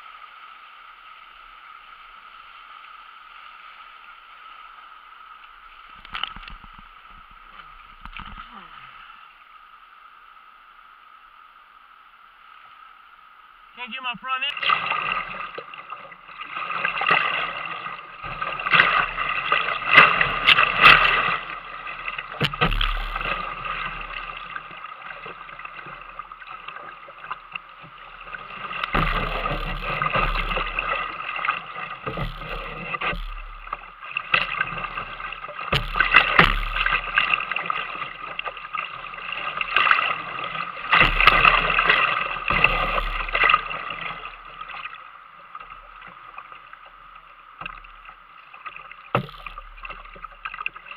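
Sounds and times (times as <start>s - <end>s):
whitewater rushing and splashing: 13.8s - 50.9s.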